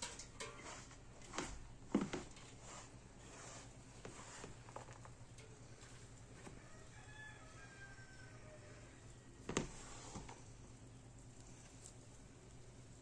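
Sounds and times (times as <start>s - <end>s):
hands rustling flour: 0.0s - 5.1s.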